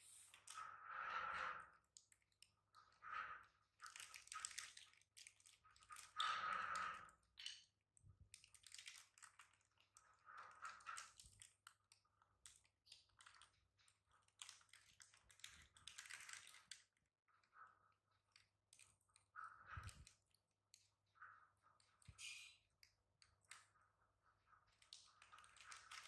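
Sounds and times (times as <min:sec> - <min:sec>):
quiet irregular clicks: 0:01.4 - 0:26.0
plastic snack packet crinkling: 0:03.8 - 0:06.2, 0:08.4 - 0:09.6, 0:10.8 - 0:11.7, 0:12.4 - 0:13.6, 0:14.2 - 0:16.8, 0:24.7 - 0:26.0.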